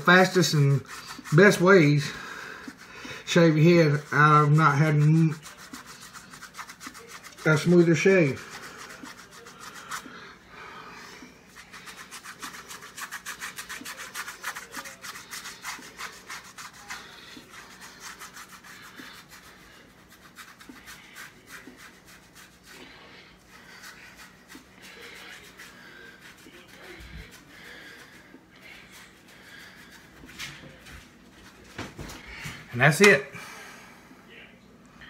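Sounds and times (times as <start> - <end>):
razor scraping through stubble: 0.1 - 10.2, 11.5 - 22.8.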